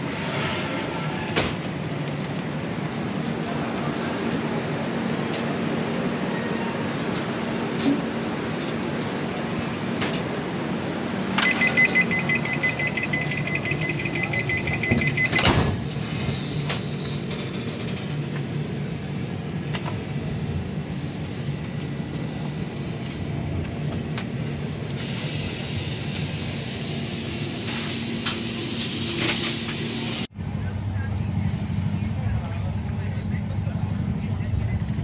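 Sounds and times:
train running noise and hum: 0.0s - 35.0s
rapid electronic beeping: 11.5s - 15.4s.

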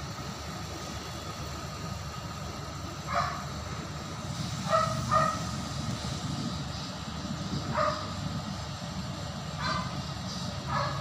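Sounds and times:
dog barking in high yaps: 3.1s - 3.4s, 4.7s - 5.4s, 7.7s - 8.1s, 9.6s - 10.0s, 10.7s - 11.0s.

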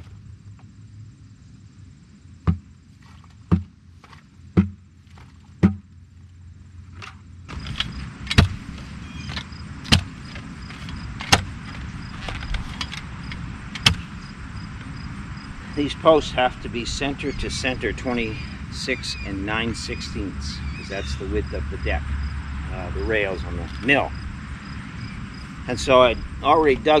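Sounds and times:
post-hole digger chopping clay: 2.4s - 5.9s, 7.5s - 11.6s, 13.8s - 14.1s
concrete knocking in bucket: 4.6s - 4.8s, 5.6s - 5.9s.

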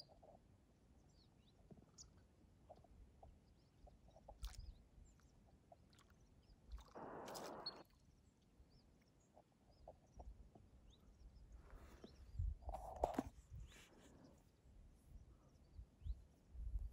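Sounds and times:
faint high bird chirps: 3.4s - 14.4s
wings splashing in water: 6.7s - 7.9s.

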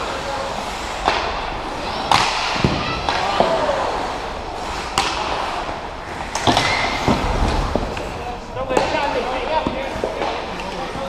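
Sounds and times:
hockey sticks and puck clacking: 0.0s - 11.0s.

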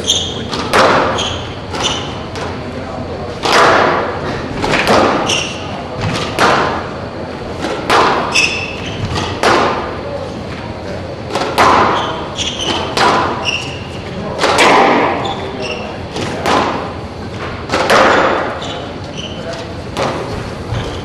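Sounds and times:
shoes squeaking on wooden floor: 0.0s - 0.5s, 1.1s - 2.2s, 5.2s - 5.7s, 8.3s - 9.3s, 11.9s - 14.0s, 18.5s - 19.6s, 20.4s - 21.0s
squash ball thwacking off walls: 0.5s - 2.6s, 3.4s - 6.9s, 7.6s - 9.9s, 11.3s - 13.5s, 14.4s - 15.3s, 17.7s - 18.6s.

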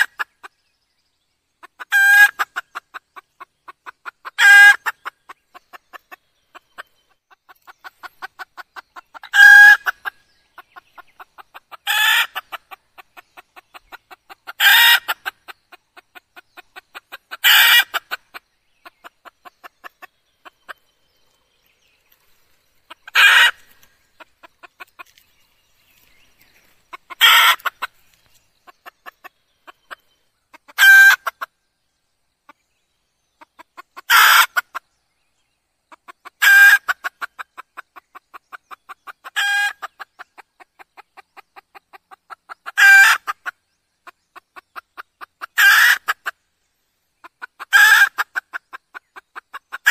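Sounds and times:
hen clucking softly: 0.0s - 0.6s, 1.6s - 21.7s, 22.8s - 31.6s, 33.4s - 34.9s, 35.9s - 46.4s, 47.2s - 49.9s
hen calling: 10.9s - 12.8s, 14.5s - 15.4s, 22.9s - 25.2s, 26.6s - 28.0s.

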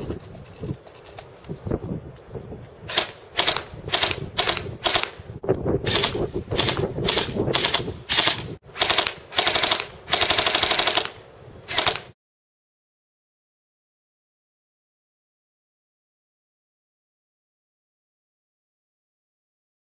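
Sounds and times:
airsoft gun firing bursts: 2.9s - 5.2s, 5.9s - 12.2s.

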